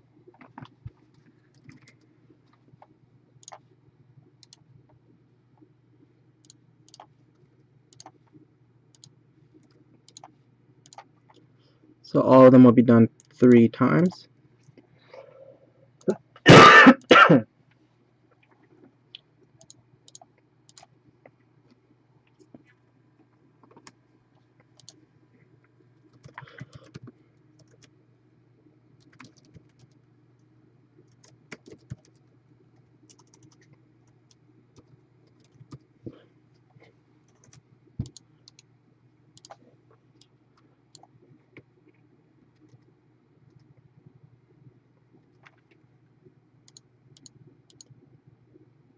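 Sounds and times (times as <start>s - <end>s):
faint low hum: 0.0s - 48.9s
laptop keyboard typing: 0.3s - 3.7s, 6.4s - 7.2s, 7.9s - 8.3s, 8.9s - 11.4s, 19.6s - 20.9s, 26.1s - 28.0s, 29.0s - 35.9s, 37.3s - 38.7s, 39.4s - 40.3s, 46.6s - 48.0s.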